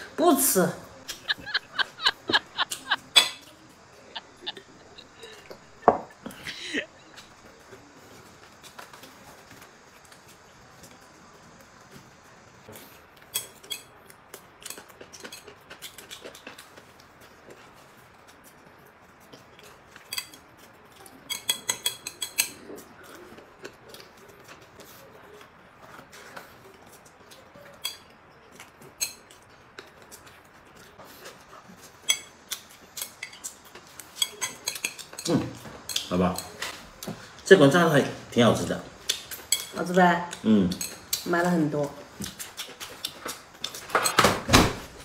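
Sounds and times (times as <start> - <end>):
chopsticks clicking on plates: 21.2 - 22.6, 32.0 - 36.8, 39.0 - 41.4.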